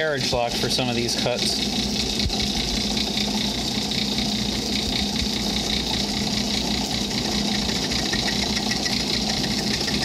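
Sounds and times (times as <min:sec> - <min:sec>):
faint rapid ticking of cutter: 0:00.0 - 0:10.0
lathe running: 0:00.0 - 0:10.0.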